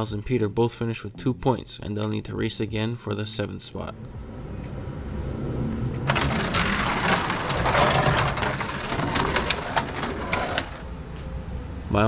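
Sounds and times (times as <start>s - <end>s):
toy cars clattering down track: 6.1s - 10.8s.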